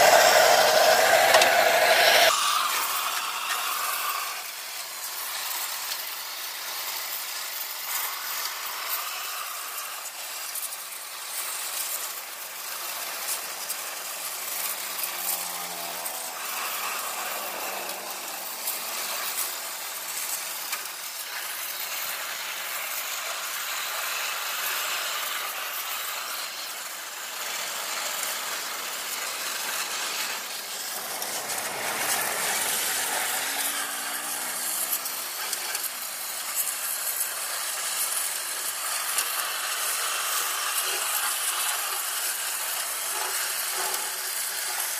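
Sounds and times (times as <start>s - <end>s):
motor running: 0.0s - 5.6s, 13.4s - 21.2s, 28.5s - 37.6s
sandblasting jet hissing: 0.0s - 44.9s.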